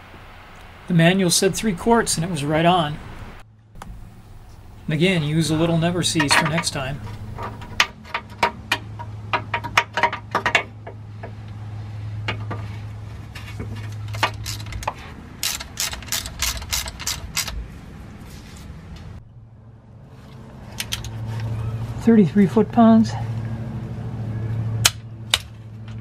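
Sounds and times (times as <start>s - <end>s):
low steady hum: 0.0s - 26.0s
ratchet clicking: 14.1s - 17.6s.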